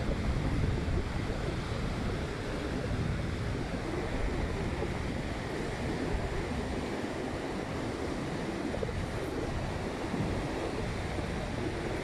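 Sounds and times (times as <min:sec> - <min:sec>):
rough surf: 0:00.0 - 0:12.0
wind rumbling on microphone: 0:00.0 - 0:12.0.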